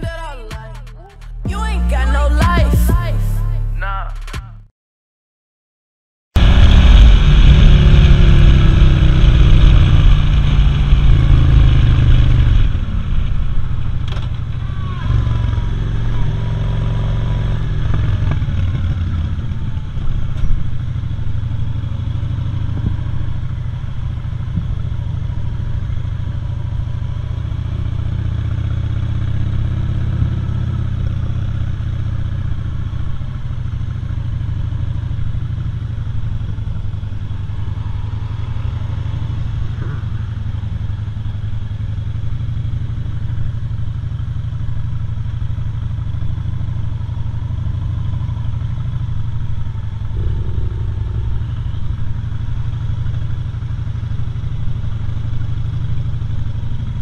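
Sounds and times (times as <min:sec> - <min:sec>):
motorcycle engine rumbling: 0:00.0 - 0:04.6, 0:06.4 - 0:57.0.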